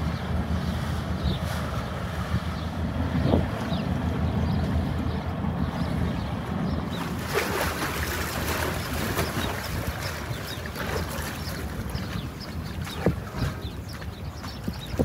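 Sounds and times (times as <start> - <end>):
harbour water washing: 0.0 - 15.0
wind buffeting microphone: 0.0 - 15.0.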